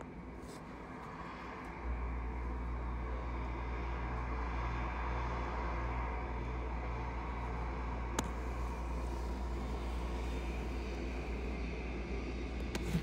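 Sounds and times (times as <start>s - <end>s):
heavy low rumble: 0.0s - 13.0s
jet engines whooshing hum: 0.0s - 13.0s.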